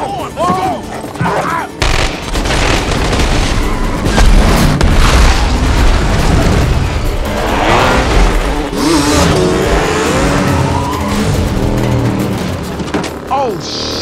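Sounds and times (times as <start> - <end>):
film score music: 0.0 - 14.0
explosion: 1.8 - 7.2
heavy booms and crashes: 1.8 - 8.4.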